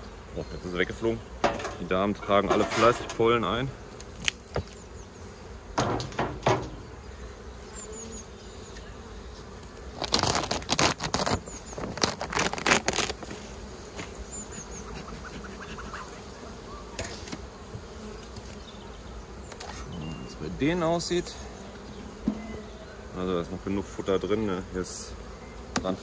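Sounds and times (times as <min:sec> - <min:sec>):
bees buzzing: 0:00.0 - 0:26.0
wooden hive parts clattering: 0:00.8 - 0:05.0, 0:05.7 - 0:07.0, 0:09.6 - 0:14.2.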